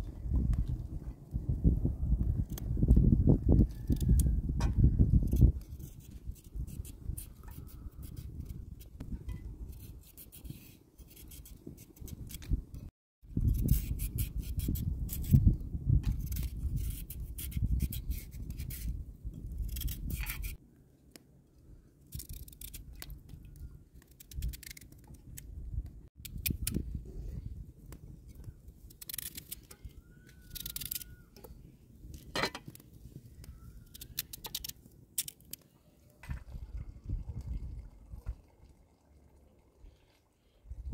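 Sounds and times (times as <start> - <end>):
knife scraping carrot: 16.1 - 19.0, 19.6 - 20.6.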